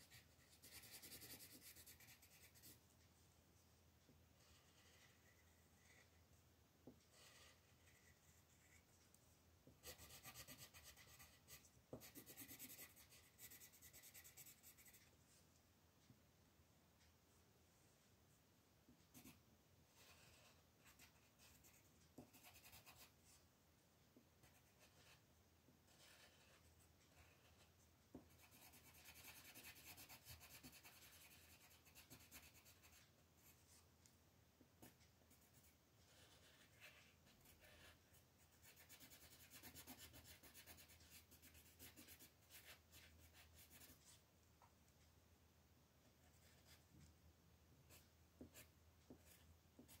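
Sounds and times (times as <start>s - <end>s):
pencil scratching on paper: 0.0s - 2.8s, 4.4s - 9.0s, 9.8s - 15.1s, 19.1s - 23.4s, 24.4s - 33.8s, 34.8s - 44.2s, 46.2s - 47.0s, 47.9s - 50.0s.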